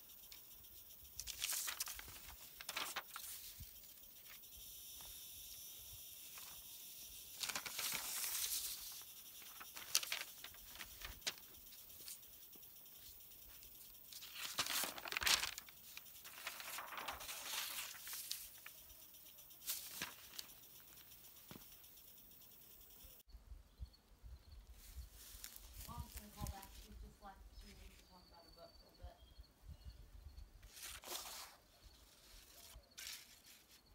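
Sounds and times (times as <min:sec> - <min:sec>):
drawing paper rustling and crinkling: 0:01.2 - 0:04.4, 0:06.3 - 0:06.6, 0:07.4 - 0:12.3, 0:13.0 - 0:18.7, 0:19.6 - 0:21.7, 0:25.2 - 0:26.9, 0:30.6 - 0:33.9.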